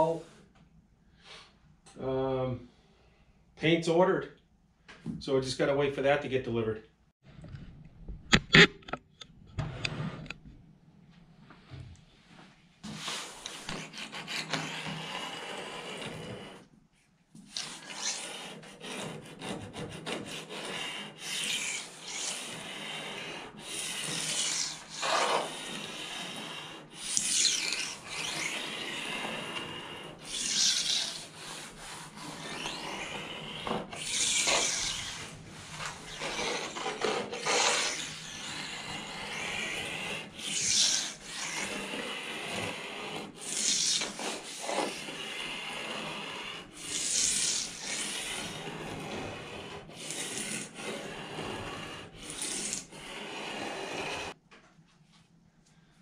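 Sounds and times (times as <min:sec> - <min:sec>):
razor blade scraping painted hull: 0:08.3 - 0:10.4, 0:12.8 - 0:16.7, 0:17.4 - 0:54.4.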